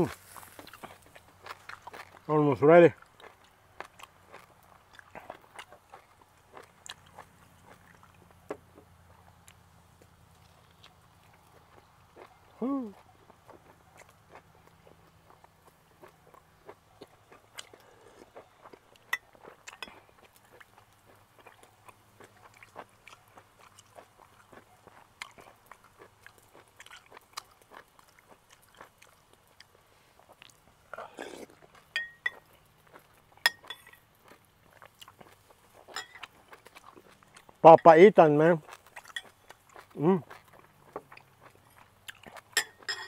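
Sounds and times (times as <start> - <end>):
chewing and mouth noises: 0.0 - 43.0
metal spoon tapping glass bowl: 32.0 - 32.4.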